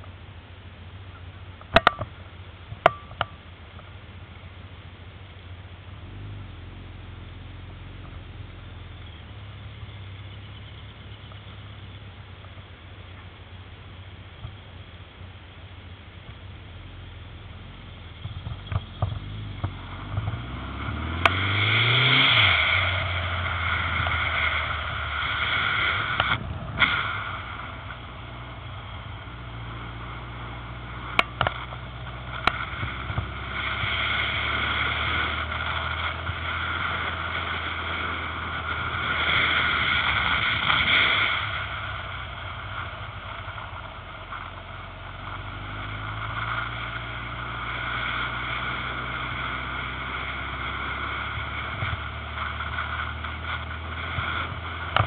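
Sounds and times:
motorcycle engine revving: 0:05.5 - 0:12.6, 0:16.3 - 0:55.0
wind rushing over microphone: 0:18.1 - 0:55.0.

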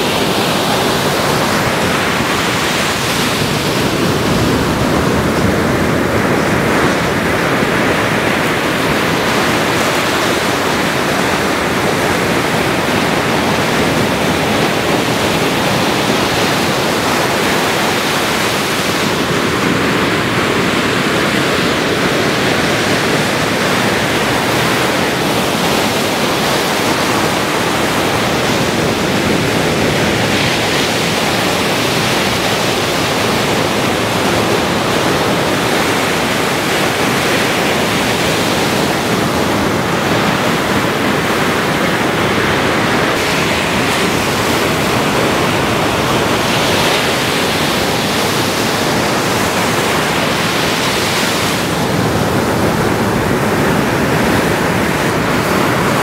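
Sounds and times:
ocean surf breaking: 0:00.0 - 0:56.0.

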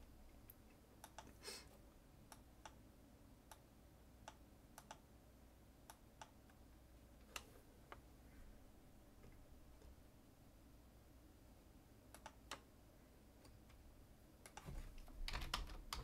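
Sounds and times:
computer mouse clicks: 0:00.5 - 0:01.4, 0:04.2 - 0:05.0, 0:12.1 - 0:12.7, 0:14.4 - 0:16.0.

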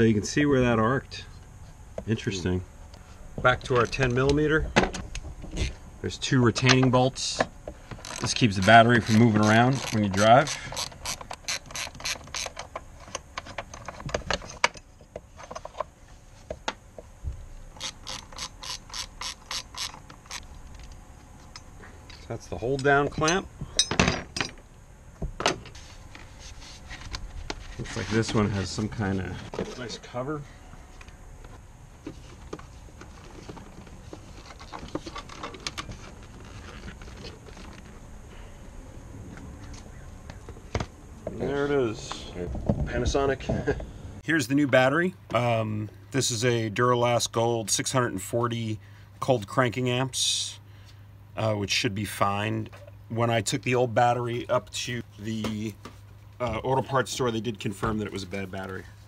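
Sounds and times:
ratchet wrench clicking: 0:08.0 - 0:12.6, 0:17.8 - 0:20.4.

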